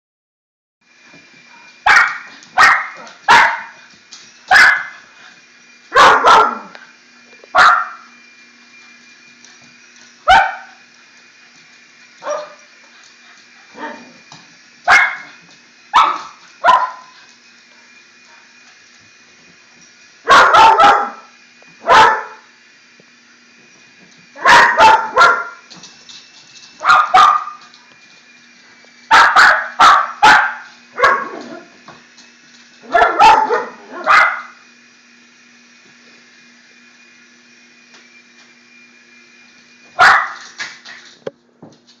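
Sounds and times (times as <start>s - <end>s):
toy helicopter motor whine: 0.9s - 41.3s
dogs barking: 1.9s - 3.8s, 4.5s - 4.9s, 5.9s - 6.7s, 7.6s - 8.0s, 12.2s - 12.7s, 14.9s - 15.3s, 16.0s - 17.1s, 20.2s - 22.4s, 24.4s - 25.6s, 26.8s - 27.6s, 29.1s - 31.5s, 32.8s - 34.6s, 40.0s - 40.4s.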